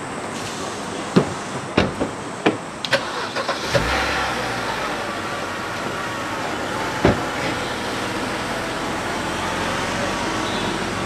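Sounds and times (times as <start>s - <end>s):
car engine starting and running: 2.8s - 11.0s
car doors shutting: 7.0s - 7.6s.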